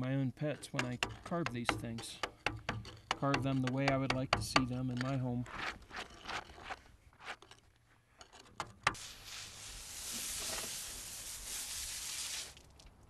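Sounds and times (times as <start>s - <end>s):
compressed air hissing: 9.0s - 12.5s.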